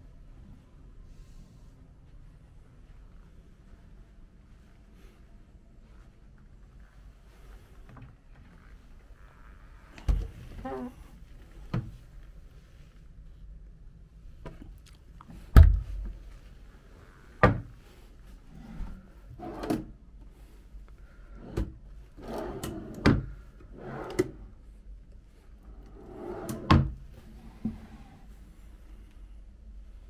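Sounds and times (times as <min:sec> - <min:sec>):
drawer sliding rumbles: 0:18.5 - 0:19.9, 0:21.3 - 0:24.4, 0:25.9 - 0:28.1.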